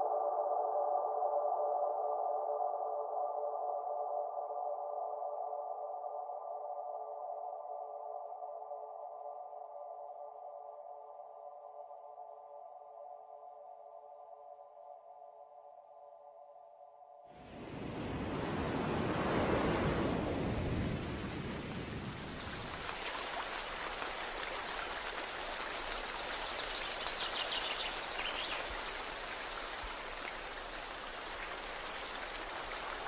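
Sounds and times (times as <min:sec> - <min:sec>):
water rushing hiss: 0:17.4 - 0:33.0.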